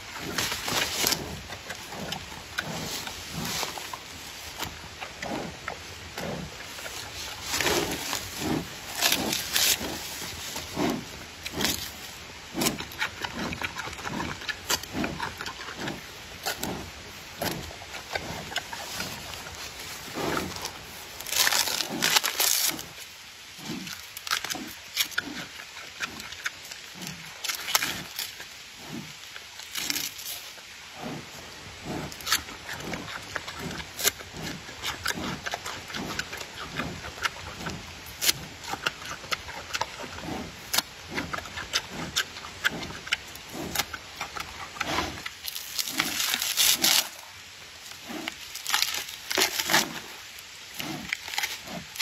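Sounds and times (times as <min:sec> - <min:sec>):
panda crunching and chewing: 0:00.1 - 0:23.0, 0:23.6 - 0:31.2, 0:31.8 - 0:47.3, 0:47.9 - 0:52.0
bamboo cracking and splintering: 0:20.5 - 0:23.1, 0:45.2 - 0:47.2, 0:47.8 - 0:52.0.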